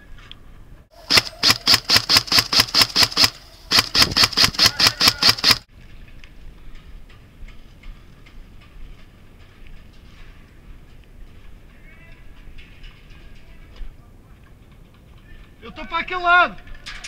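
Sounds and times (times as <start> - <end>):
airsoft rifle firing single shots: 1.0 - 5.7.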